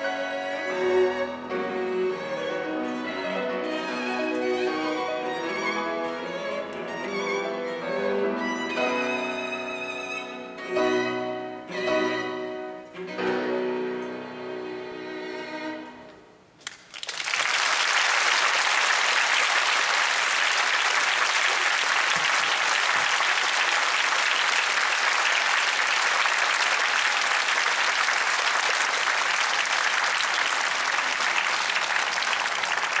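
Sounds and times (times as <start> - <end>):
audience applauding: 16.6 - 33.0.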